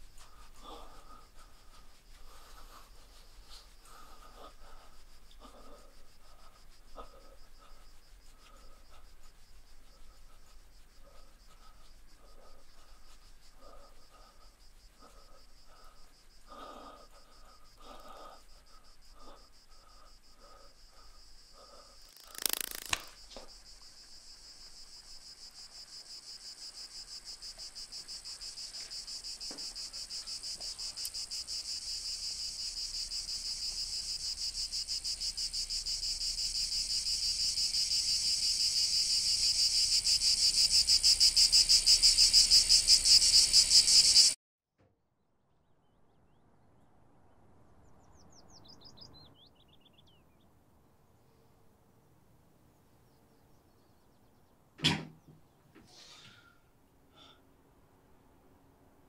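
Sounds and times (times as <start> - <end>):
cicadas buzzing: 0.0 - 44.4.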